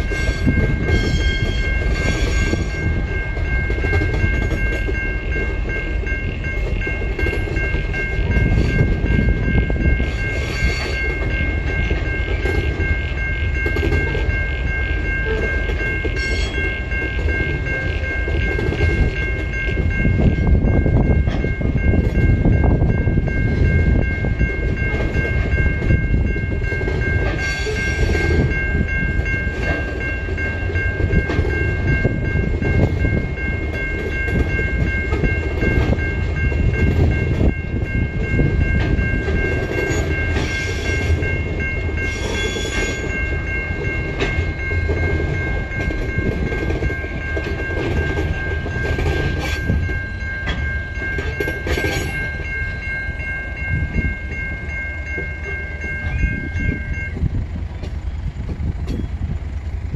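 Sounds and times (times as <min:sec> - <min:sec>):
train wheels rumbling on rail: 0:00.0 - 0:59.9
high-pitched wheel squeal: 0:42.0 - 0:43.0.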